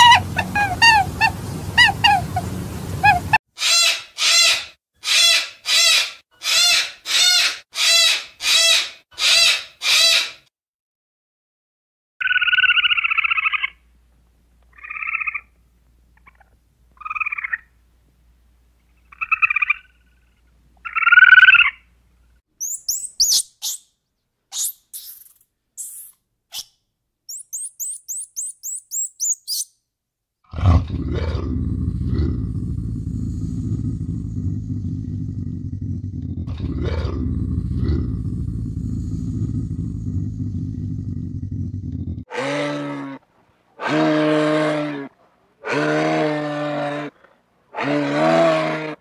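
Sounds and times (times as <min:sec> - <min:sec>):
squirrel buzzy chirps: 0:00.0 - 0:02.4, 0:22.6 - 0:23.9, 0:24.5 - 0:29.7
squirrel monkey squeaking chirps: 0:00.0 - 0:02.4, 0:03.0 - 0:10.2, 0:22.6 - 0:23.9, 0:24.5 - 0:26.7, 0:27.3 - 0:29.7
pitched animal calls: 0:00.0 - 0:10.4, 0:22.6 - 0:23.8, 0:27.3 - 0:29.7.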